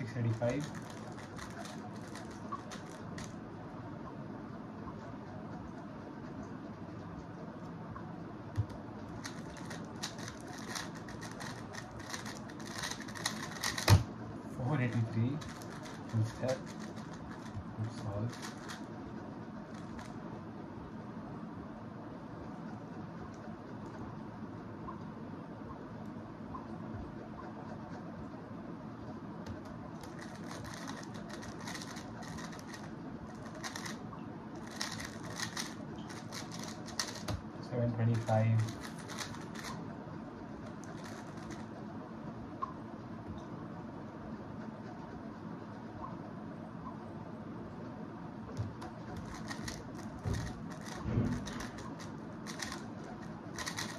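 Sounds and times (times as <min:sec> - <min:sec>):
puzzle cube clicking: 0:00.3 - 0:03.4, 0:08.6 - 0:14.1, 0:14.9 - 0:18.8, 0:29.5 - 0:34.0, 0:34.6 - 0:37.5, 0:38.2 - 0:39.8, 0:40.9 - 0:41.6, 0:49.1 - 0:53.9.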